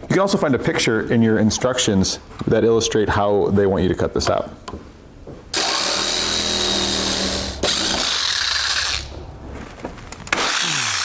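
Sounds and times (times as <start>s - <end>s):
rotary tool cutting plastic: 5.6s - 9.1s, 10.2s - 11.0s.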